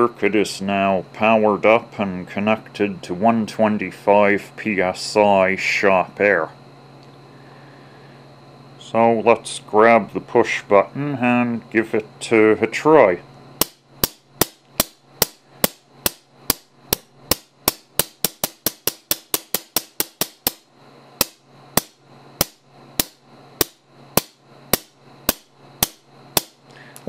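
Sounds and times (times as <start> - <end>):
solenoid valve air blasts: 13.6 - 26.6.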